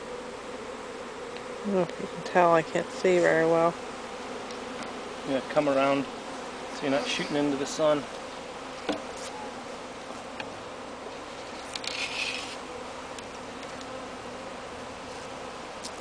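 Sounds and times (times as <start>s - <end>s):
bees humming: 0.0s - 16.0s
brief rustle: 11.4s - 12.6s.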